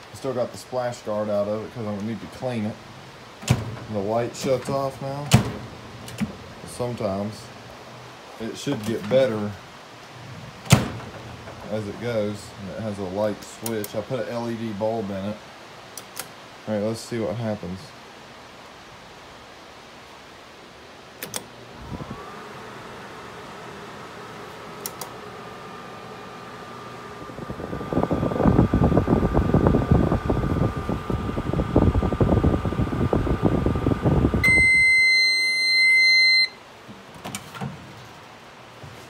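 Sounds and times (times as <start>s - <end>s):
microwave oven humming: 21.3s - 36.7s
microwave long beep: 34.3s - 36.6s.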